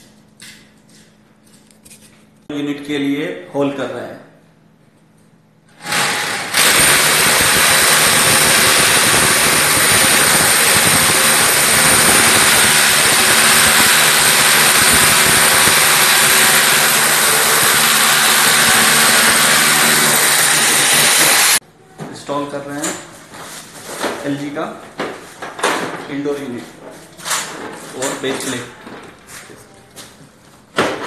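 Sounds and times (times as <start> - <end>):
hammer drill boring into wall: 5.7 - 21.6.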